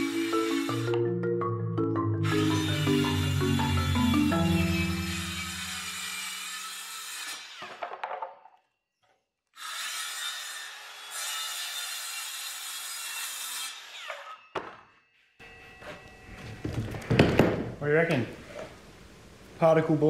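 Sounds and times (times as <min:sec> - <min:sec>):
circular saw cutting board: 0:02.2 - 0:08.0.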